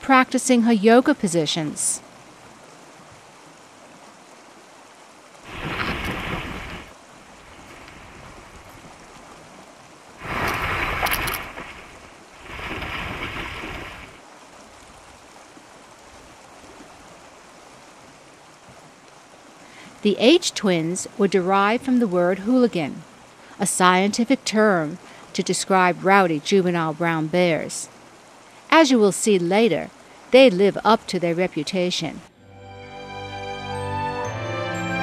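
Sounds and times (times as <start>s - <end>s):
wind and surf: 1.3s - 28.9s
bear splashing through water: 5.4s - 9.5s, 10.2s - 14.2s.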